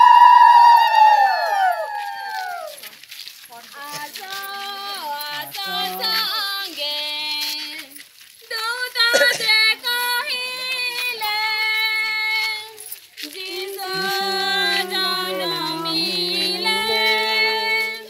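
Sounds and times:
women and girls singing: 3.6 - 7.9, 8.5 - 18.0.

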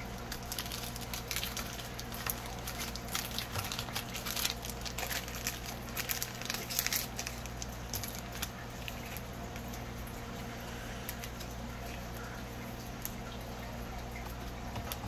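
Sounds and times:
steady low hum: 0.0 - 15.0
trading cards clicking and rustling: 0.2 - 9.6.

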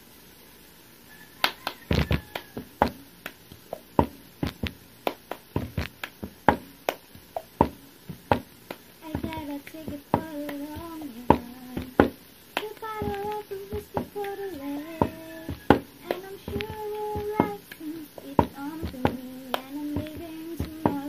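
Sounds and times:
hands clapping: 1.4 - 21.0
cup knocking on tabletop: 1.9 - 3.0, 3.7 - 4.8, 5.5 - 6.7, 7.5 - 8.5, 9.2 - 12.2, 13.0 - 14.2, 15.0 - 17.6.

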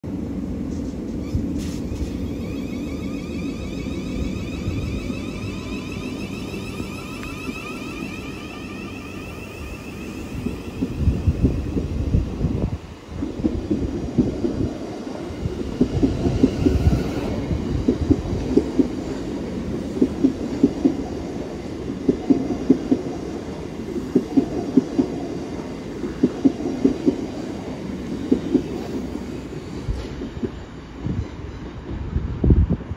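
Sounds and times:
electric train whine: 0.0 - 32.9.

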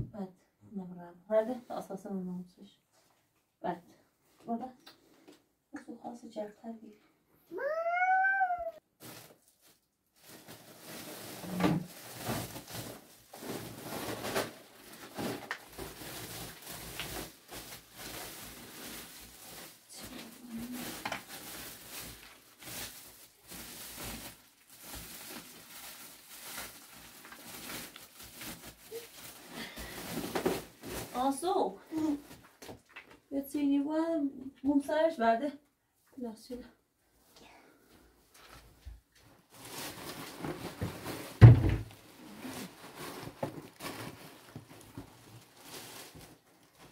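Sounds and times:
plastic sack rustling: 9.0 - 32.9, 38.4 - 46.9
household items clattering: 10.4 - 19.0, 27.1 - 31.4, 39.6 - 46.9.

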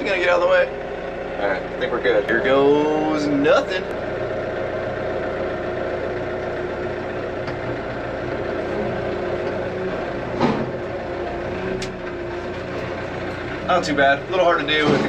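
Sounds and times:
tractor engine running: 0.0 - 15.0
short thump: 10.4 - 10.8.

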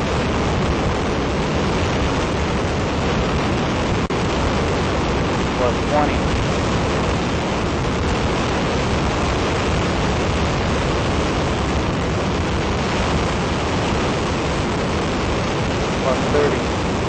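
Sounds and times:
rocket motor exhaust roar: 0.0 - 17.0.

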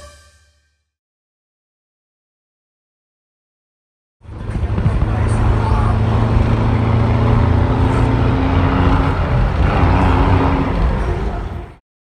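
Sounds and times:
bus engine running: 4.2 - 11.8
road noise: 4.2 - 11.8.

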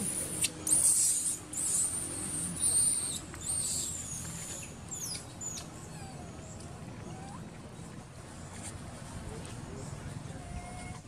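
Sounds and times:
baby monkey screaming: 0.1 - 4.2.

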